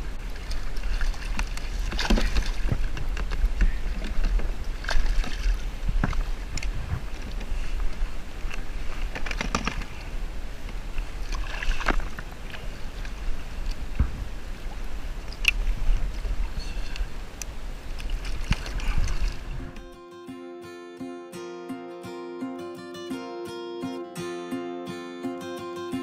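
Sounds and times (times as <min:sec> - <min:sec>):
water splashing and sloshing: 0:00.0 - 0:19.9
wind rumble on microphone: 0:00.0 - 0:19.9.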